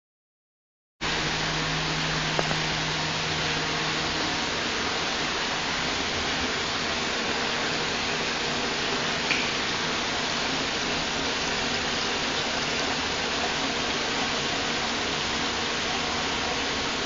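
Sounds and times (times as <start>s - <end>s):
running splashing water: 5.8s - 17.0s.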